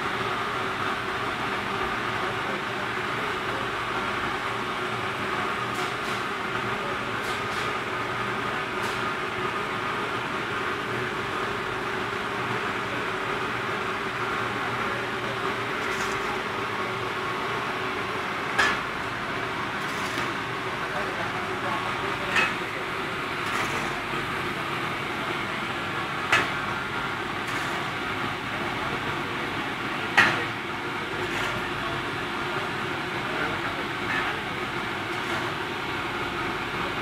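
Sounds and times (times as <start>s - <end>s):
boiler machinery drone: 0.0s - 37.0s
shovel scraping concrete floor: 15.8s - 16.3s, 19.8s - 20.3s, 23.4s - 24.0s, 31.2s - 31.6s.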